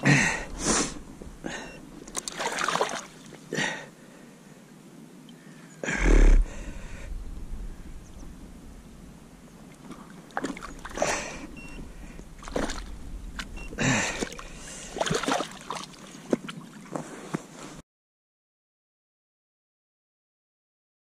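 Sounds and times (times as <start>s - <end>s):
water splashing and sloshing: 1.5s - 3.8s, 9.6s - 17.8s.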